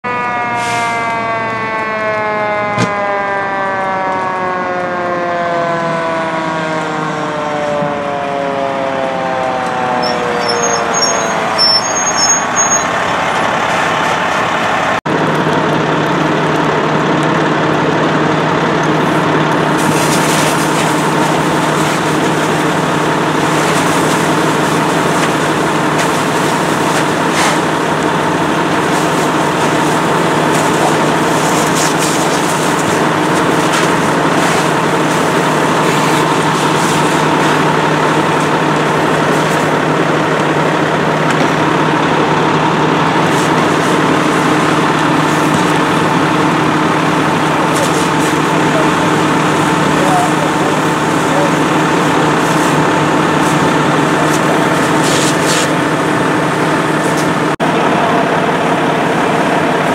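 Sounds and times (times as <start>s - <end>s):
fire engine running: 0.0s - 59.9s
fire engine siren winding down: 0.0s - 59.9s
hose spraying water: 19.0s - 39.8s, 43.2s - 57.4s.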